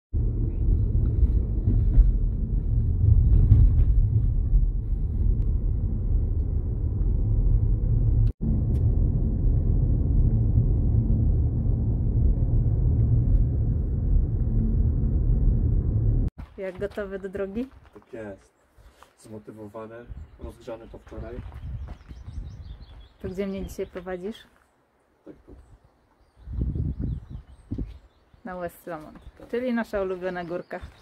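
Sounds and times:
car road and engine rumble: 0:00.2 - 0:16.3.

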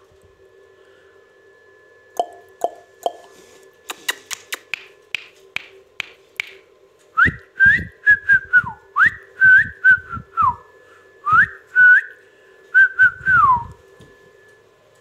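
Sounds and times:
person whistling a tune: 0:07.2 - 0:13.8.

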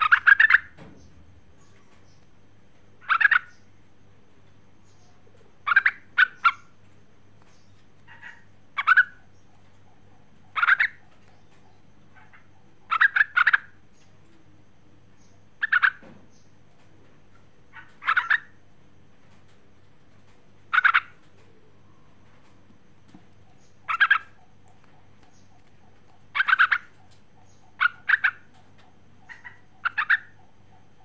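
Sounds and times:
bird chattering calls: 0:00.0 - 0:00.8, 0:03.0 - 0:03.7, 0:04.8 - 0:06.8, 0:07.4 - 0:14.1, 0:15.2 - 0:16.5, 0:17.7 - 0:18.6, 0:20.7 - 0:21.4, 0:23.4 - 0:31.0.

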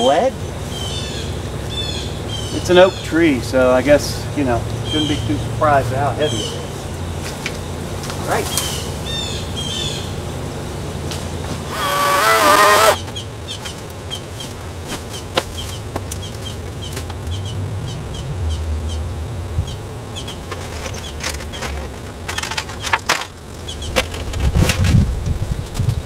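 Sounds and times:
chainsaw motor whine: 0:10.7 - 0:13.1.

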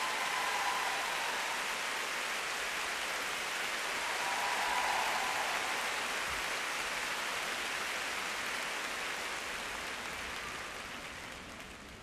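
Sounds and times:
crowd applauding: 0:00.0 - 0:12.0.

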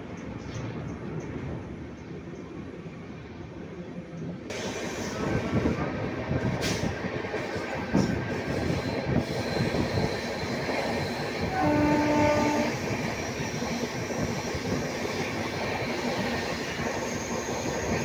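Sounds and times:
train rumbling and rattling: 0:00.0 - 0:18.0
train horn: 0:11.5 - 0:12.8.

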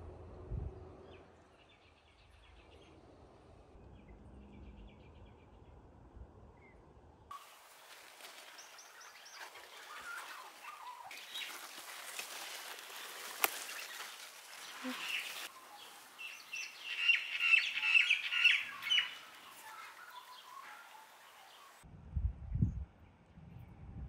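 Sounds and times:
birds trilling chirps: 0:06.6 - 0:21.8
hissy outdoor background: 0:06.6 - 0:21.9
high bird chirps: 0:12.9 - 0:21.8.

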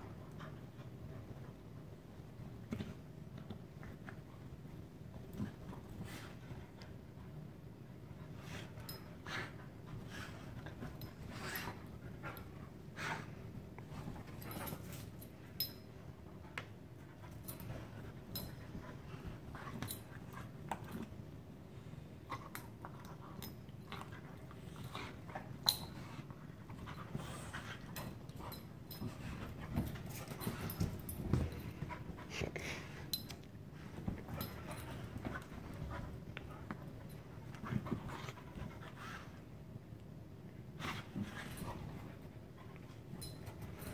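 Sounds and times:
dogs scuffling on couch: 0:24.9 - 0:39.5.

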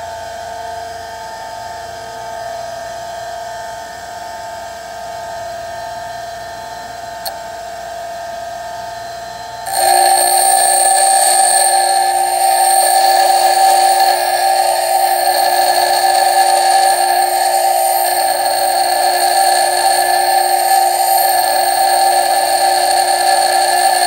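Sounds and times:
bench grinder running: 0:09.7 - 0:24.0
drill bit grinding on wheel: 0:09.7 - 0:24.0.

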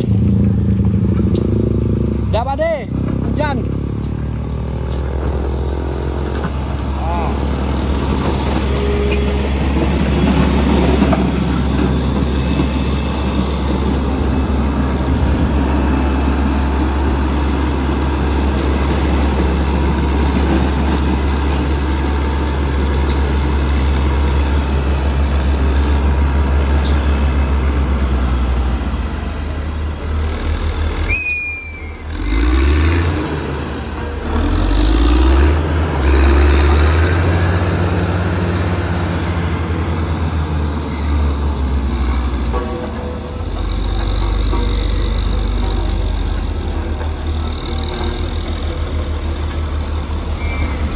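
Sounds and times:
diesel engine droning: 0:00.0 - 0:50.9
short high squeal: 0:31.0 - 0:32.1, 0:50.4 - 0:50.9.

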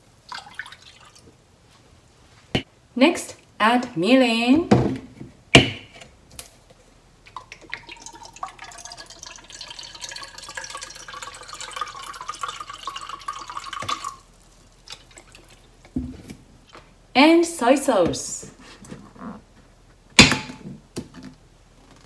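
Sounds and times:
liquid trickling into a cup: 0:00.3 - 0:01.3, 0:07.3 - 0:15.8.

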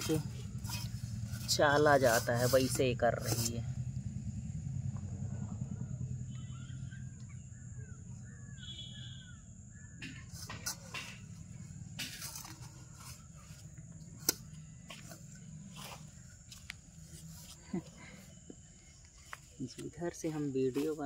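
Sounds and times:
steel plate scraping sand: 0:00.0 - 0:03.6, 0:10.3 - 0:13.5
low steady hum: 0:00.0 - 0:21.0
faint bird chirps: 0:05.4 - 0:10.3.

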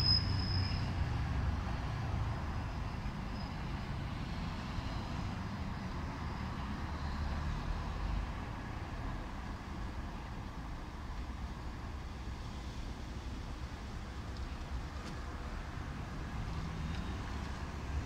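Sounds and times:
high squeal: 0:00.0 - 0:01.1
traffic rumble: 0:00.0 - 0:18.0.

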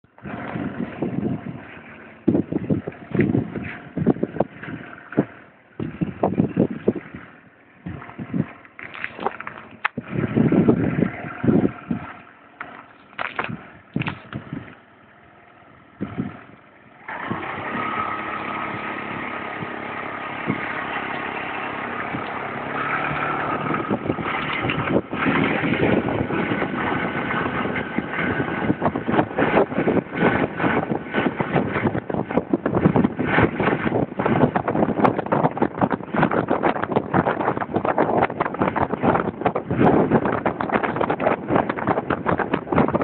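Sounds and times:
wind buffeting microphone: 0:00.1 - 0:43.0
scooter engine running: 0:00.2 - 0:43.0.

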